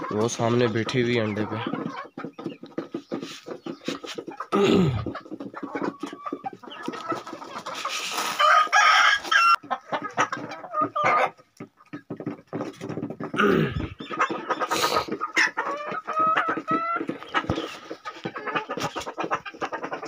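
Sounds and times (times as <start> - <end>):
chickens clucking: 0.0 - 20.0
loud chicken call: 8.0 - 9.6, 13.4 - 16.3.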